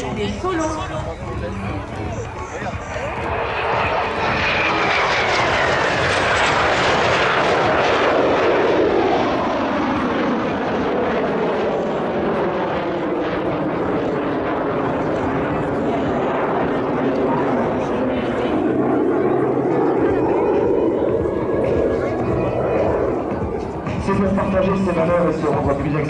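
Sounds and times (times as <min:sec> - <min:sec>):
jet passing and climbing: 0:00.0 - 0:26.0.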